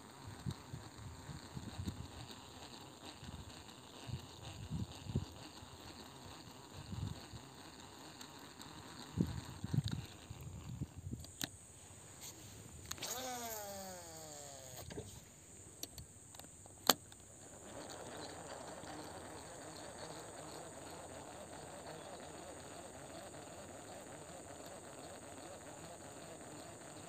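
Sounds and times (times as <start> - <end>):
reel winding noise: 0.0 - 11.5, 12.1 - 15.2, 15.8 - 27.0
fishing reel spool whirring: 0.0 - 11.6, 12.2 - 15.2, 15.8 - 27.0
sharp click: 15.8 - 17.3.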